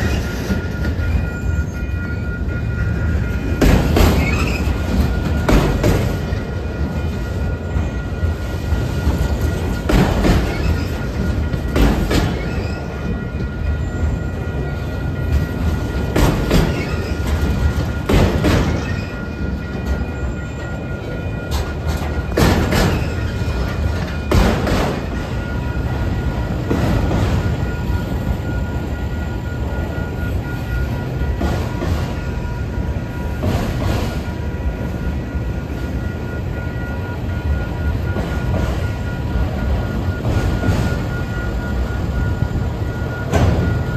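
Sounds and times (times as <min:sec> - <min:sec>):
crossing warning bell: 0:00.0 - 0:43.9
freight cars rumbling on rails: 0:00.0 - 0:43.9.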